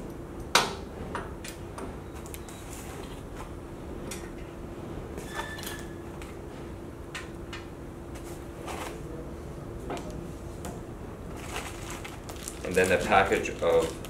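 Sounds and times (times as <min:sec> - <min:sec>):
steady low hum: 0:00.0 - 0:14.0
brief squeak: 0:05.2 - 0:06.0.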